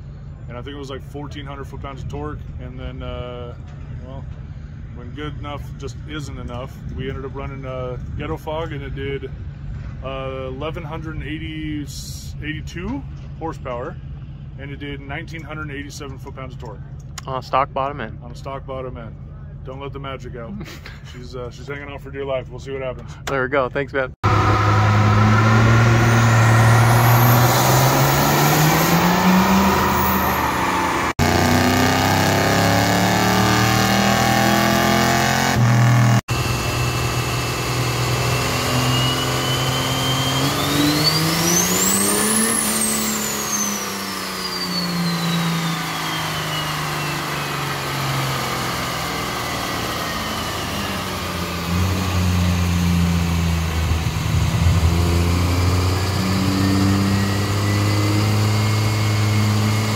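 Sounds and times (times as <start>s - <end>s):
high turbo whine: 0.0s - 59.9s
diesel engine revving under load: 24.2s - 59.9s.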